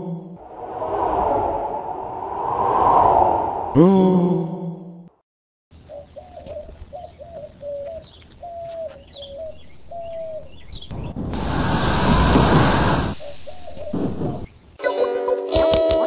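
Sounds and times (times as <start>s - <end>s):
small birds chirping: 5.8s - 11.2s, 13.0s - 14.6s
dove cooing: 6.2s - 10.6s.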